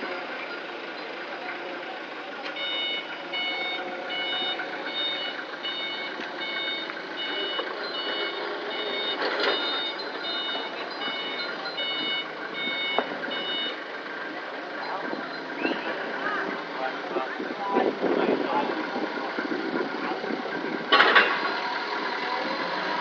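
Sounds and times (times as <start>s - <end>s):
machinery rumble: 0.0s - 23.0s
shrill warning beeps: 2.6s - 13.8s.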